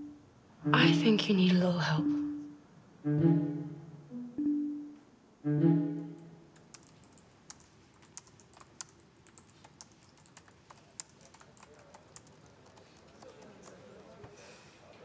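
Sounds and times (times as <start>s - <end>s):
laptop keyboard typing: 6.6s - 14.4s.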